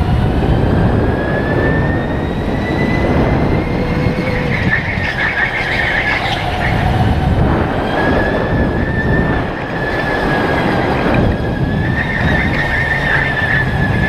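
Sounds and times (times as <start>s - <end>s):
electric kart whine: 0.0s - 14.0s
tyre and air rumble: 0.0s - 14.0s.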